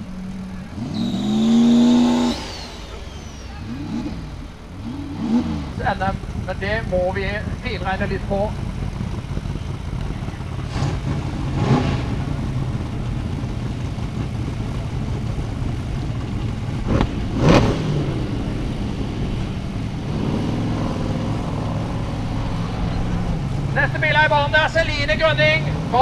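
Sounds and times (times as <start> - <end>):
buggy engine revving: 0.0 - 26.0.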